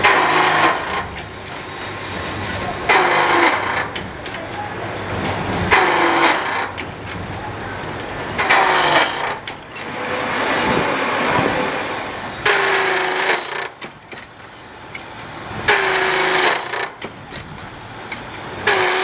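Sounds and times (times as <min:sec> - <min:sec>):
milling machine humming: 0:00.0 - 0:19.0
cutter biting into steel: 0:11.4 - 0:13.8, 0:15.7 - 0:17.0, 0:18.6 - 0:19.0.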